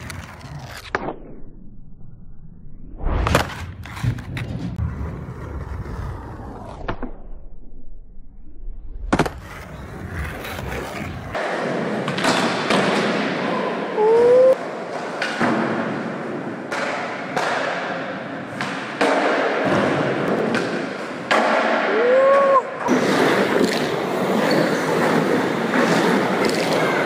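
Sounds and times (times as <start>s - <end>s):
skateboard wheels rolling on concrete: 0.0s - 1.0s, 3.3s - 7.1s, 9.0s - 27.0s
skateboard landing clack: 9.1s - 9.5s.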